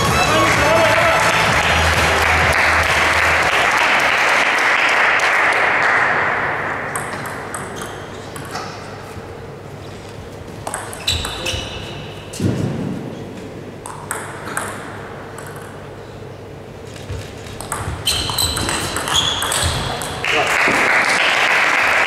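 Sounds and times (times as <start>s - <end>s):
applause: 0.2s - 6.6s, 20.2s - 22.0s
table tennis ball pings: 17.6s - 20.2s.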